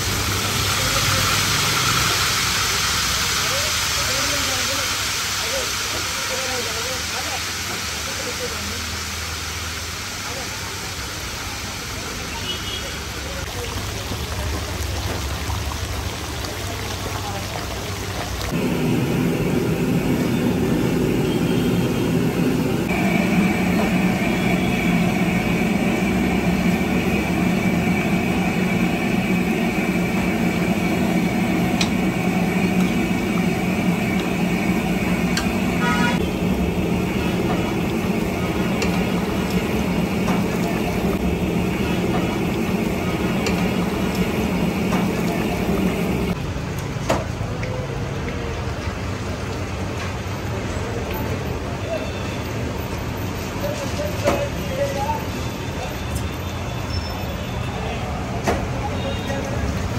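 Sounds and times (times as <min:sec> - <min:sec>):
curry bubbling and sizzling: 0:00.0 - 0:21.9, 0:22.8 - 0:46.4
street traffic: 0:00.0 - 0:59.9
horn toot: 0:35.7 - 0:36.3.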